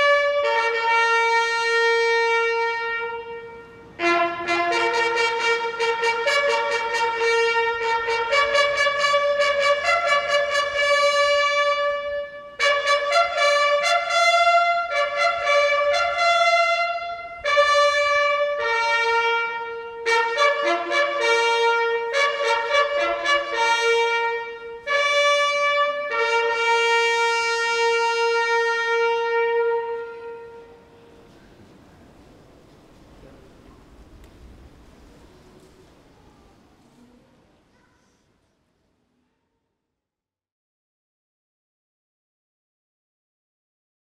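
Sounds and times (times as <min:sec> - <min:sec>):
bugle call: 0:00.0 - 0:31.4.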